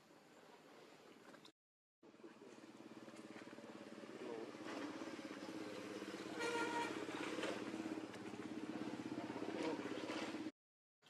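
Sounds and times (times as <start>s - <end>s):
engine running with fast pulse: 2.1s - 10.5s.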